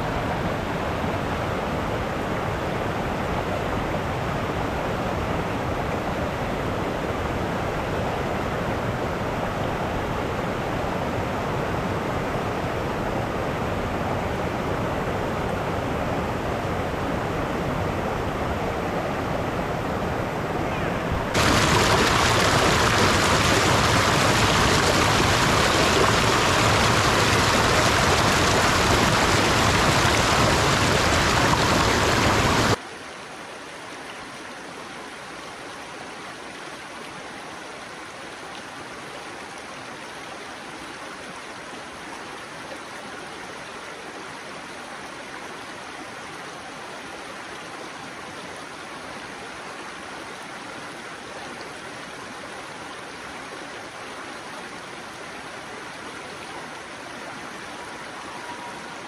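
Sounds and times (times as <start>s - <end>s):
creek flowing over stones: 0.0s - 59.0s
stream rushing over boulders: 0.0s - 59.0s.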